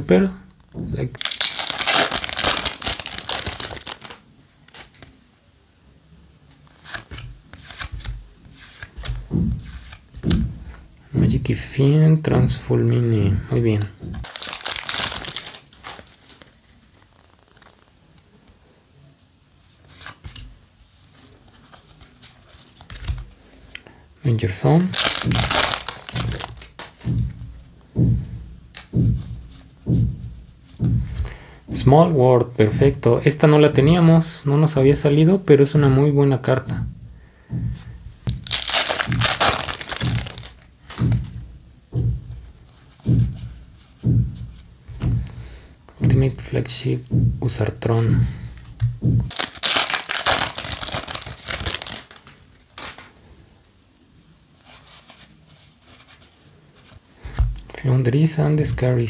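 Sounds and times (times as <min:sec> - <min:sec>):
cards being handled: 0:01.0 - 0:05.2, 0:06.5 - 0:10.8, 0:13.7 - 0:17.9, 0:19.8 - 0:23.8, 0:24.8 - 0:27.3, 0:38.2 - 0:41.4, 0:48.6 - 0:53.2
foil pack tearing open: 0:01.2 - 0:05.0, 0:14.2 - 0:16.5, 0:24.9 - 0:27.0, 0:38.4 - 0:41.0, 0:49.3 - 0:53.1
cards sliding off a stack: 0:06.7 - 0:10.3.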